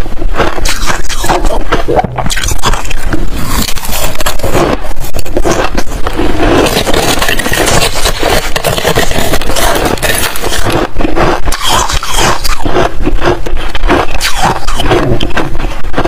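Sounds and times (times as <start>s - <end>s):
metal spoon scraping ice: 2.3s - 5.8s, 6.6s - 13.2s.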